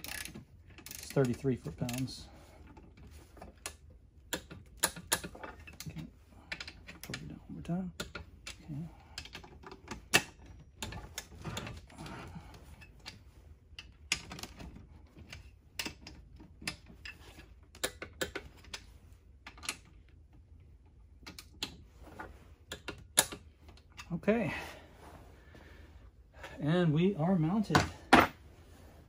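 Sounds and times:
loud wrench clicks: 0:00.0 - 0:01.4
torque wrench ratcheting clicks: 0:00.0 - 0:02.2.

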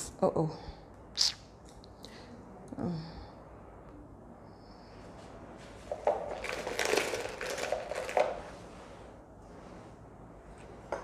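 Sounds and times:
plastic bag crinkling: 0:06.0 - 0:08.5.

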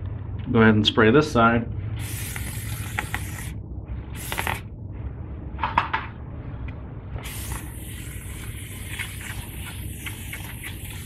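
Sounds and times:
aerosol spray hissing: 0:02.0 - 0:03.5, 0:04.2 - 0:04.6, 0:07.2 - 0:11.0.

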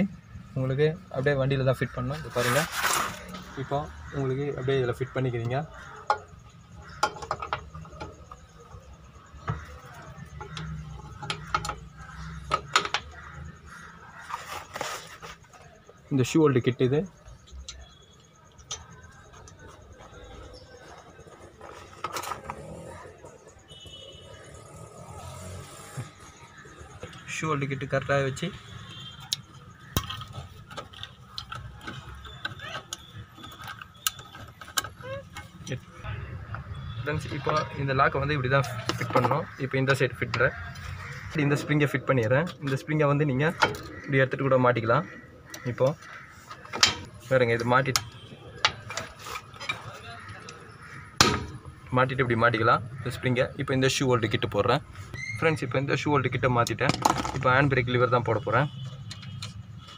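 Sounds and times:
metal brake parts clicking: 0:29.3 - 0:36.0.

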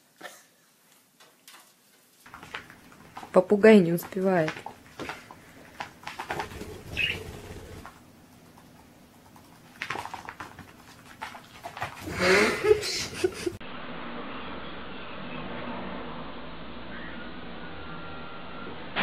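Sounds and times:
pet claws skittering on wood floor: 0:01.5 - 0:07.9, 0:09.3 - 0:12.1
high bird chirp: 0:06.8 - 0:07.4.

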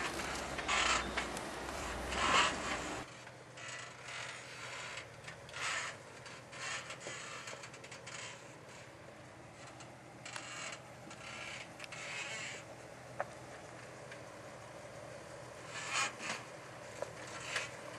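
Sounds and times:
creaking rubbing bursts: 0:00.0 - 0:08.9, 0:09.6 - 0:12.7, 0:15.6 - 0:16.5
engine rumble: 0:00.0 - 0:17.9.

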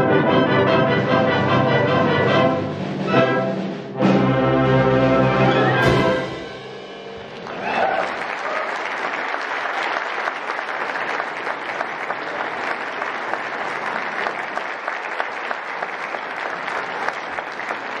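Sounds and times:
audience applauding: 0:07.2 - 0:18.0.

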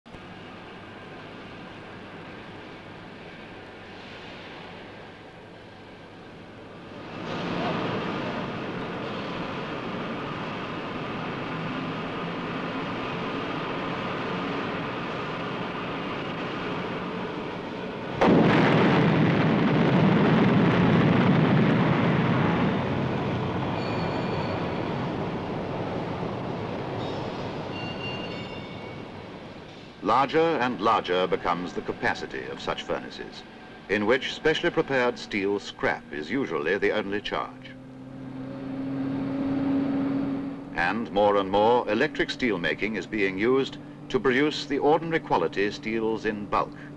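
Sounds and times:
industrial roar: 0:00.4 - 0:27.9, 0:28.9 - 0:46.9
heavy crash and rumble: 0:18.1 - 0:25.1.

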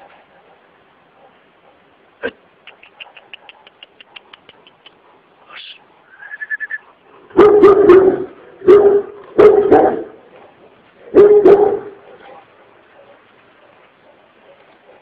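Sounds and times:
faint quick ticks: 0:02.6 - 0:05.0
dog barking aggressively: 0:07.2 - 0:15.0.

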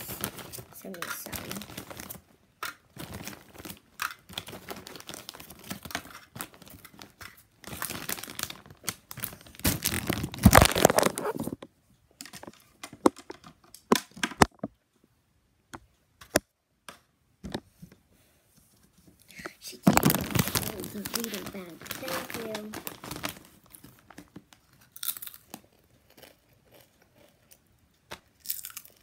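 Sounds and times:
chip bag crinkling: 0:00.0 - 0:11.6, 0:19.7 - 0:27.6, 0:28.2 - 0:29.0.

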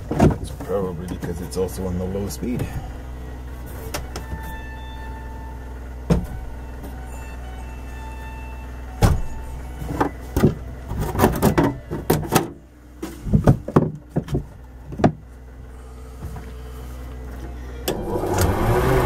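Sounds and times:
knocks and clunks: 0:00.0 - 0:01.7, 0:03.6 - 0:05.1, 0:06.0 - 0:07.1, 0:09.0 - 0:15.4
small generator running: 0:00.0 - 0:19.0.

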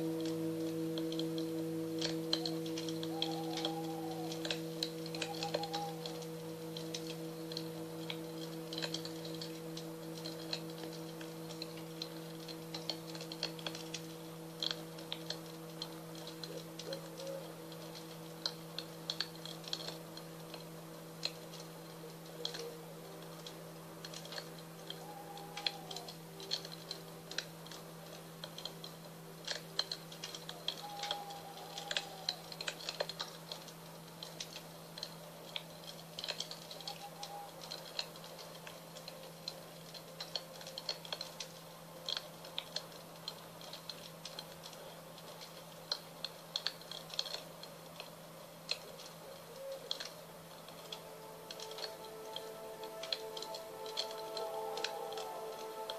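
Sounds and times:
singing bowls ringing: 0:00.0 - 0:33.1, 0:50.4 - 0:55.9
wood fire crackling: 0:00.0 - 0:55.9.

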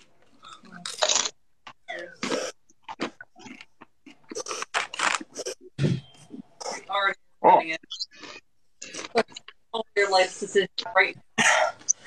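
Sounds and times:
people crunching chips: 0:00.3 - 0:05.6.

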